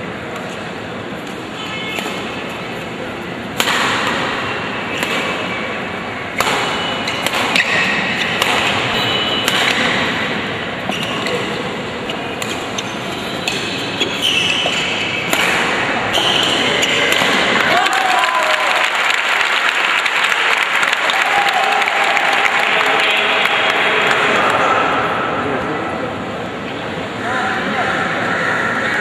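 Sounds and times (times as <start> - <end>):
background noise: 0.0 - 29.0
rackets hitting shuttlecock: 0.3 - 17.7.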